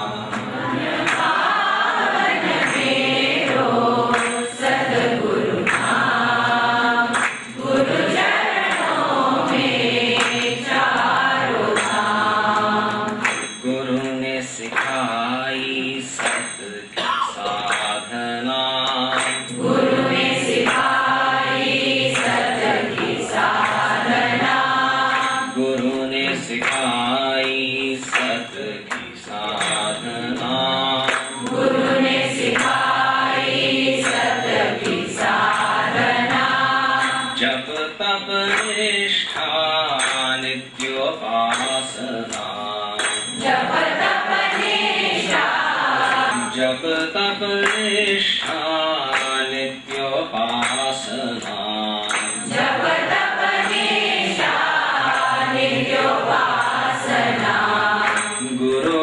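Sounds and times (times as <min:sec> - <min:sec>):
man singing into a microphone: 0:00.0 - 0:00.5, 0:13.6 - 0:19.5, 0:25.5 - 0:31.4, 0:37.0 - 0:43.3, 0:46.2 - 0:52.4, 0:58.1 - 0:59.0.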